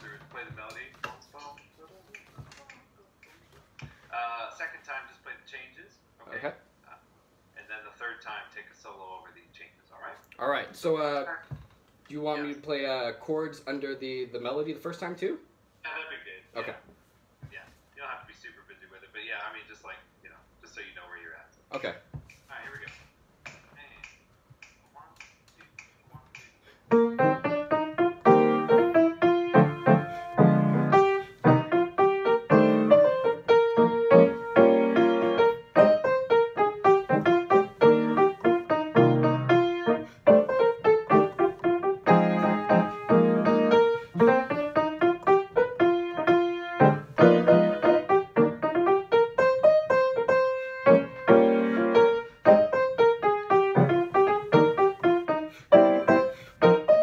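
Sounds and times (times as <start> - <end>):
piano melody over chords: 26.9 - 57.0.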